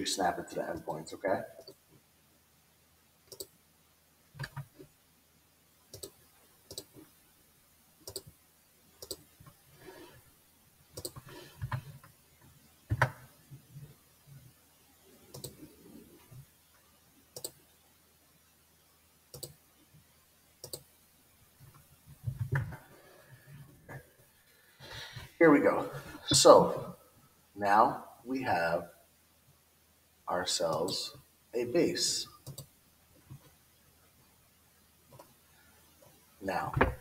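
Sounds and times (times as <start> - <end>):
computer mouse clicks: 3.3 - 3.5, 5.9 - 6.9, 8.0 - 8.3, 9.0 - 9.2, 11.0 - 12.1, 15.3 - 15.6, 17.4 - 17.6, 19.3 - 19.6, 20.6 - 20.9, 32.4 - 32.7.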